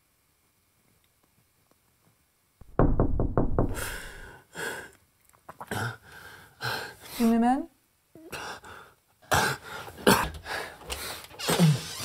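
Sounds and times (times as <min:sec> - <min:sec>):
knocking on a door: 0:02.6 - 0:04.2.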